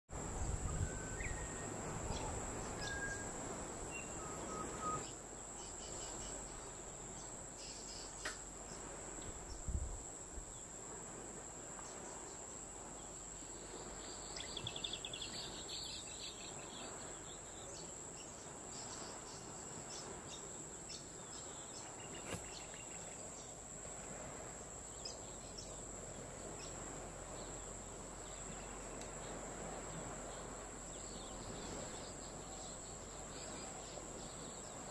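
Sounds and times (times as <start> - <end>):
trilling bird call: 0.7 - 1.8, 2.6 - 3.4.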